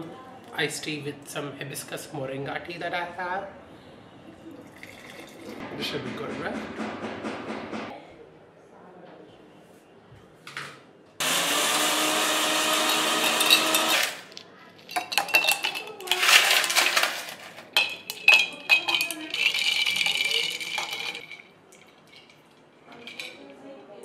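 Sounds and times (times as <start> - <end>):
ice cubes clinking in glass jar: 12.4 - 23.5
spoon stirring against glass: 12.7 - 23.5.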